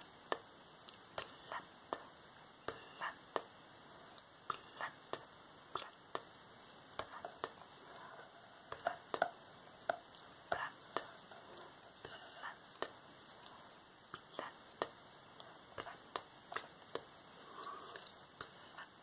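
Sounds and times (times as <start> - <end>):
breathy whispers: 10.4 - 14.6, 17.3 - 19.0.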